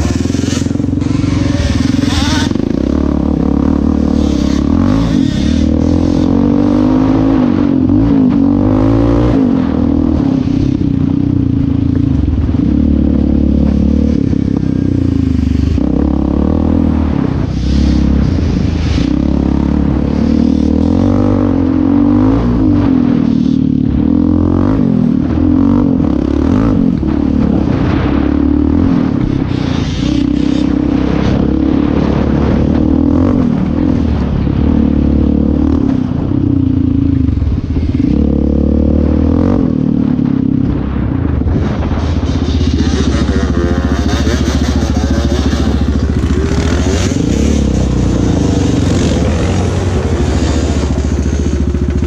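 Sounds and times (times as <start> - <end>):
quad engine revving: 0.0 - 52.0.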